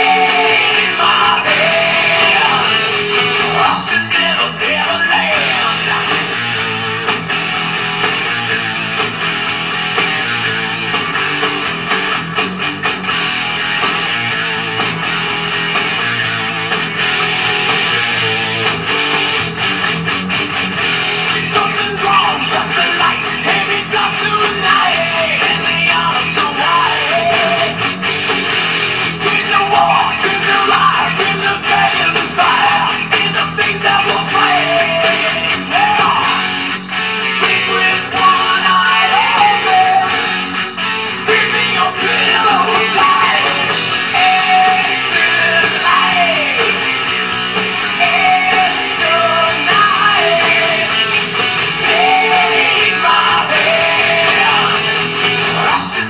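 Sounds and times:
rock electric guitar: 0:00.0 - 0:56.0.

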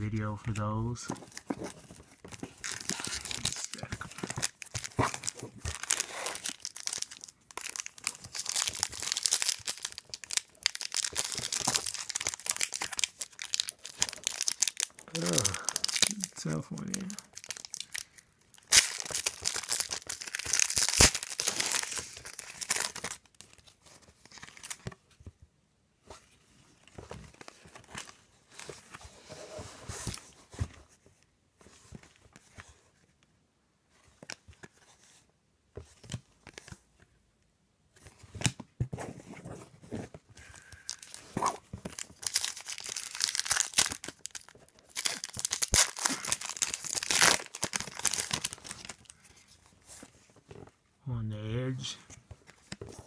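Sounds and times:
cards rustling: 0:00.2 - 0:25.0, 0:39.0 - 0:50.7
foil wrappers crinkling and tearing: 0:02.4 - 0:23.6, 0:40.4 - 0:49.4.

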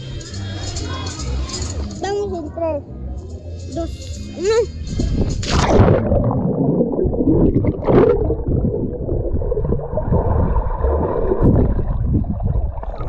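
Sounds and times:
dull low underwater rumble: 0:04.9 - 0:13.0
underwater bubbles gurgling: 0:05.5 - 0:13.0.

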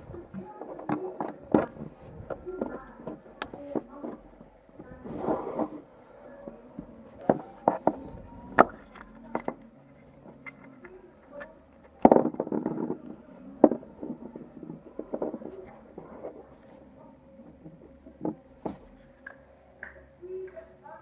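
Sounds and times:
plastic toy parts clicking: 0:08.6 - 0:09.7.

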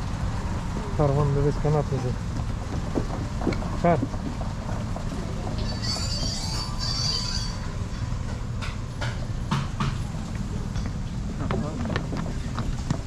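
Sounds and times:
wind buffeting microphone: 0:02.2 - 0:05.6
high-pitched squeal: 0:05.6 - 0:08.1.

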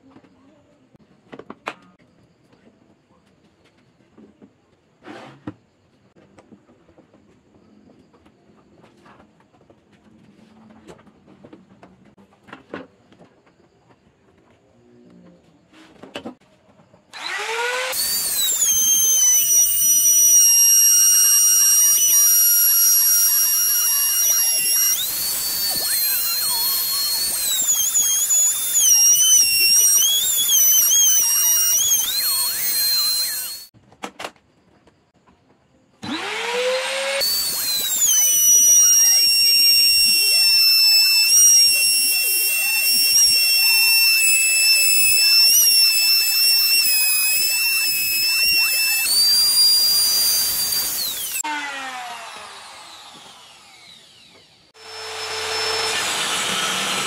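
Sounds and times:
electric router cutting wood: 0:17.2 - 0:33.7, 0:36.0 - 0:57.0.

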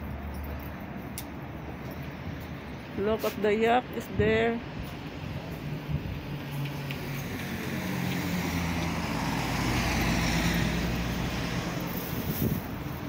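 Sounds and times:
vehicle driving past: 0:06.4 - 0:12.8.

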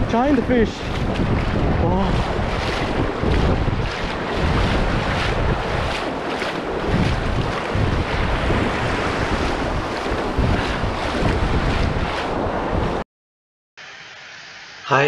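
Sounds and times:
shallow surf rushing: 0:00.0 - 0:13.0
wind buffeting microphone: 0:00.0 - 0:13.0.

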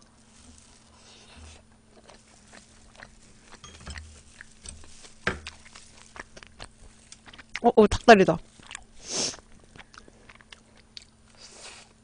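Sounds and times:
soft chewing and mouth noises: 0:00.0 - 0:12.0
metal tongs clicking on dishes: 0:03.6 - 0:04.8.

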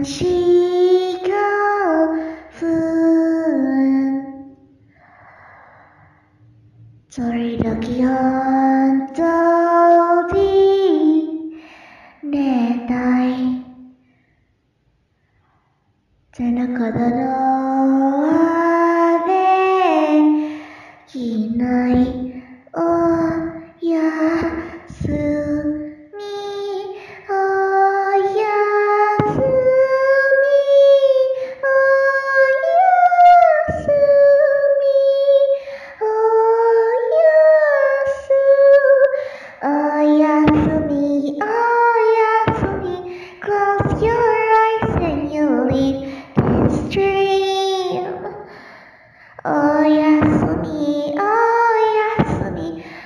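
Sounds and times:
high voice singing wordlessly: 0:21.1 - 0:48.5, 0:49.4 - 0:53.0.

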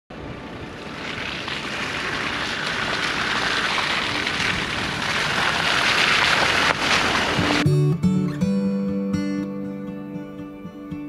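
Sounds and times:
vehicle engine approaching: 0:00.1 - 0:07.6
tyres on mud: 0:00.8 - 0:07.6.

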